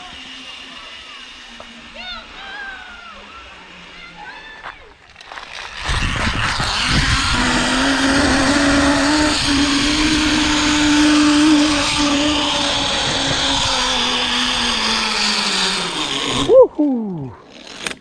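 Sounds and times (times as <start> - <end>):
zip-line pulley whine: 0.0 - 18.0
wind rumble on microphone: 5.7 - 15.1.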